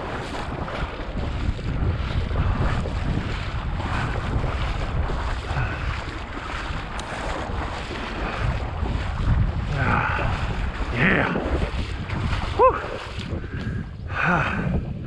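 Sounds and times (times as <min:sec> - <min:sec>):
water sloshing from wading: 0:00.0 - 0:14.1
wind rumble on microphone: 0:00.0 - 0:15.0.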